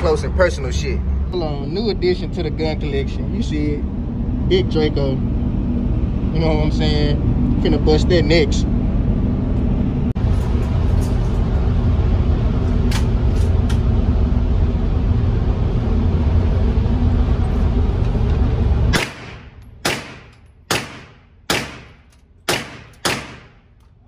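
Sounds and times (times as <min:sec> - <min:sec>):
loud low rumble: 0:00.0 - 0:22.4
pistol gunshots echoing indoors: 0:18.9 - 0:23.8.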